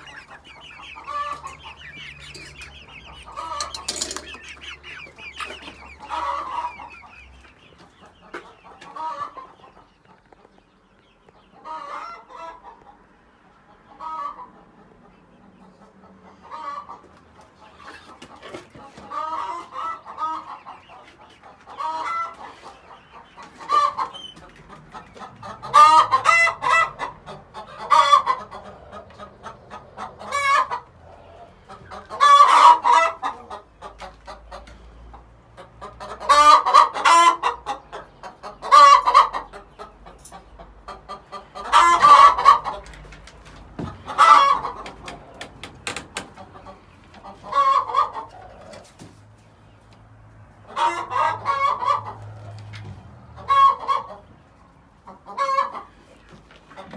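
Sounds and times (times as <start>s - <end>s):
chickens clucking and calling: 0.0s - 56.9s.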